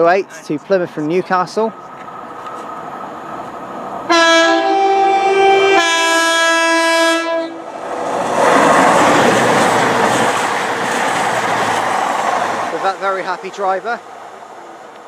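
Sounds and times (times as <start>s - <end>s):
train passing at speed: 0.9s - 15.0s
two-tone train horn blast: 4.1s - 7.6s.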